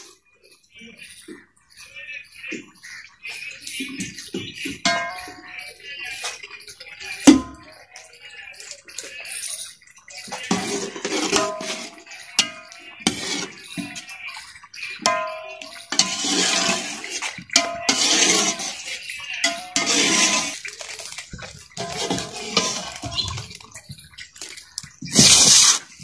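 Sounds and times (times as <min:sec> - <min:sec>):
metal spoon scraping in pot: 0:10.3 - 0:26.0
metal clinking on pot: 0:10.5 - 0:14.1, 0:15.0 - 0:23.7.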